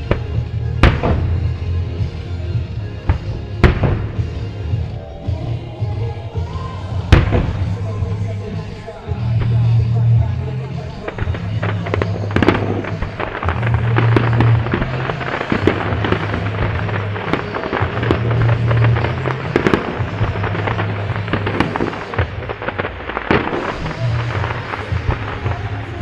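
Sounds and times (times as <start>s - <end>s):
fireworks popping and banging: 0.0s - 26.0s
music with bass line: 0.0s - 26.0s.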